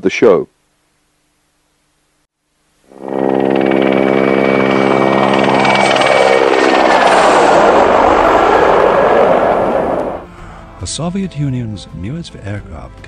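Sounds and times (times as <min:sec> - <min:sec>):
high turbine whine: 0:02.8 - 0:10.4
helicopter rotor buzz: 0:02.9 - 0:10.3
helicopter rushing noise: 0:02.9 - 0:10.3.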